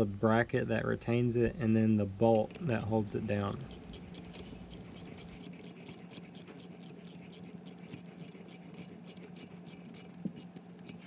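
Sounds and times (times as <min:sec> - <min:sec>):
faint steady hum: 0:00.0 - 0:11.0
ratchet clicking rapidly: 0:03.5 - 0:11.0.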